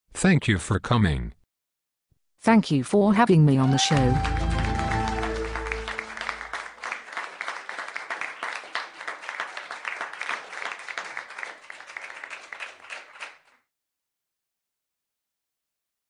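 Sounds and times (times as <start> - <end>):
audience applause: 3.6 - 13.5
music sting chord: 4.0 - 6.5.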